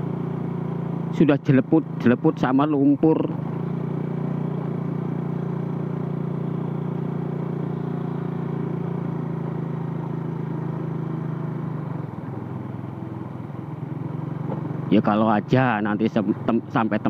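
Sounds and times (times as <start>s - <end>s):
motor scooter engine running: 0.0s - 17.0s.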